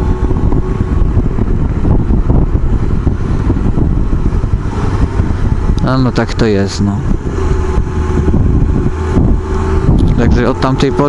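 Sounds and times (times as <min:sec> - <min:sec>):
motorcycle engine rumble: 0:00.0 - 0:11.0
wind rushing over microphone: 0:00.0 - 0:11.0.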